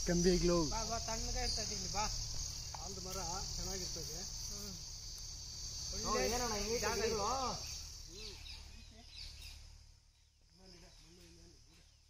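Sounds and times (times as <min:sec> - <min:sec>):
insects droning: 0:00.0 - 0:12.0.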